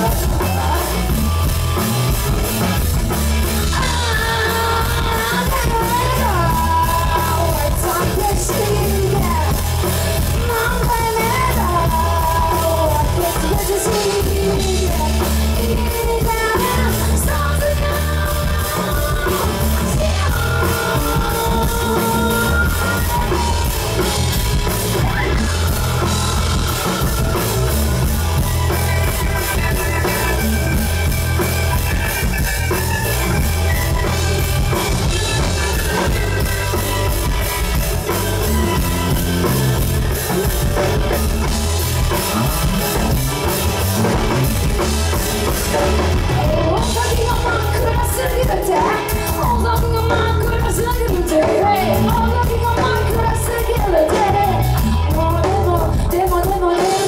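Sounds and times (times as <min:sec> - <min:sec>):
woman singing: 0:00.0 - 0:01.2, 0:03.6 - 0:27.8, 0:46.2 - 0:57.0
live rock band playing: 0:00.0 - 0:57.0.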